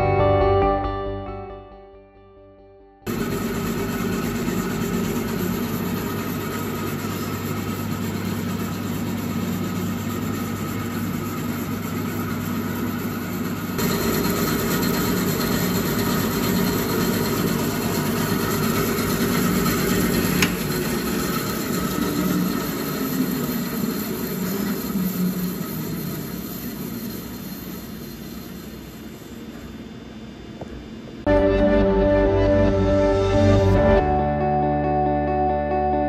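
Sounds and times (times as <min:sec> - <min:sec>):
bandsaw running idle: 0:03.1 - 0:29.4.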